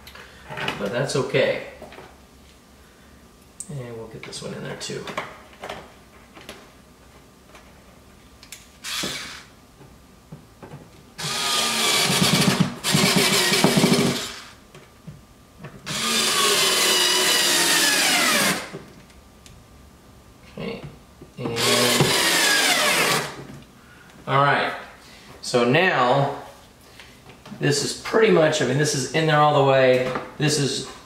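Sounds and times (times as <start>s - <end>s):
cordless drill driving screws: 8.8s - 9.5s, 11.2s - 14.6s, 15.9s - 18.7s, 21.6s - 23.4s.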